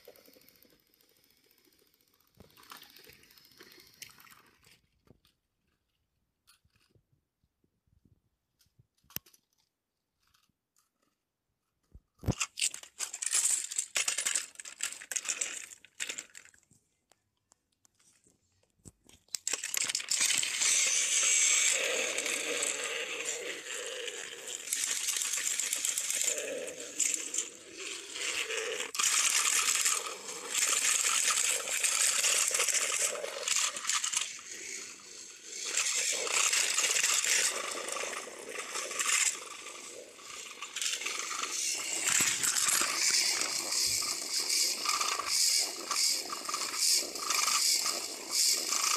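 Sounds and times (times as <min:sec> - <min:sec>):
toy train motors whirring: 0:00.0 - 0:04.8, 0:12.2 - 0:16.7, 0:19.0 - 0:48.9.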